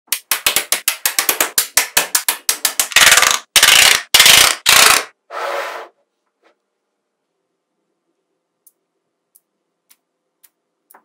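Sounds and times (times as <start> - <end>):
magnetic balls clicking together: 0.1 - 5.1.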